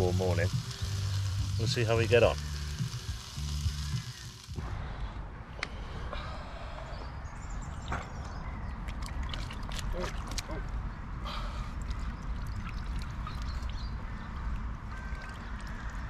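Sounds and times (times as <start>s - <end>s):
water splashing and dripping: 7.8s - 10.8s, 11.7s - 16.0s.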